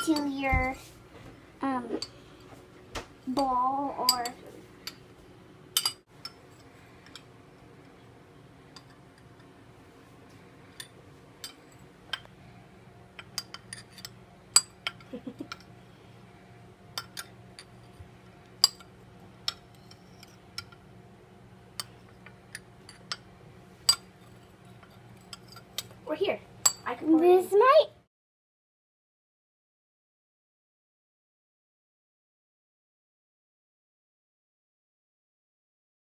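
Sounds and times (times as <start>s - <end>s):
faint steady hum: 0.0s - 28.1s
metal spoon clinking on glass: 5.8s - 7.3s, 13.2s - 15.7s, 26.6s - 26.9s.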